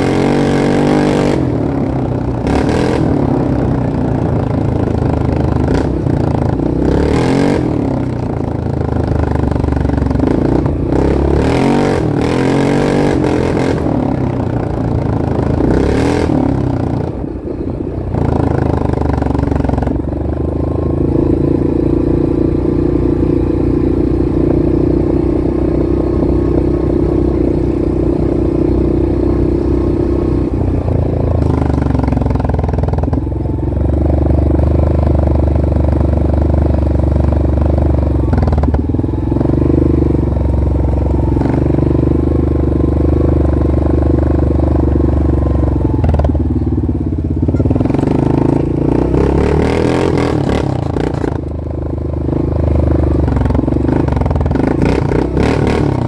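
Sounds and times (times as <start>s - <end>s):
off-road vehicle engine revving: 0.0s - 1.8s, 2.4s - 3.9s, 5.6s - 8.1s, 10.1s - 14.2s, 15.3s - 17.2s, 47.5s - 51.5s, 53.2s - 56.0s.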